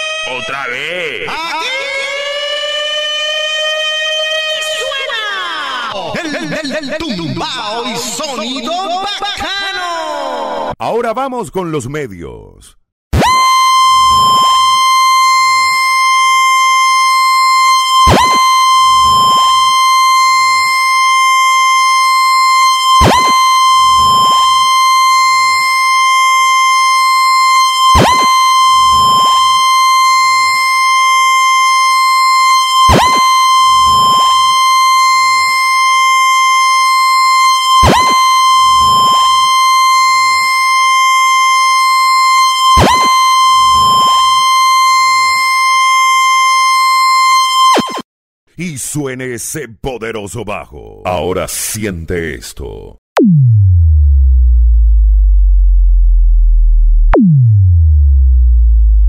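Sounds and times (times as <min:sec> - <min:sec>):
falling pitch sweeps: 0:13.2 - 0:48.0
steady high test tone: 0:36.4 - 0:45.4.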